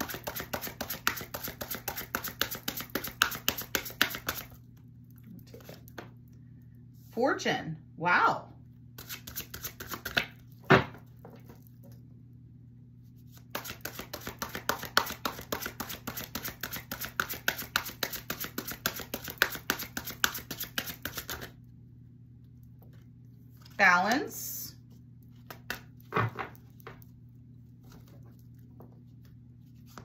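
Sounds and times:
cards being shuffled: 0.0s - 4.5s, 9.0s - 10.4s, 13.2s - 21.6s.

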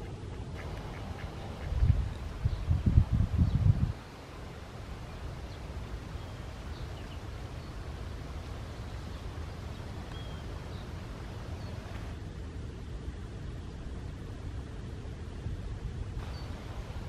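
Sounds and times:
faint bird chirps: 8.7s - 12.0s, 16.2s - 16.7s.

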